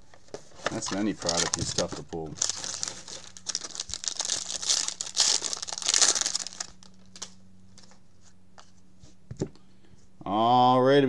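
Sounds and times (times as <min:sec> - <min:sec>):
plastic wrap crinkling and tearing: 0:00.7 - 0:07.4.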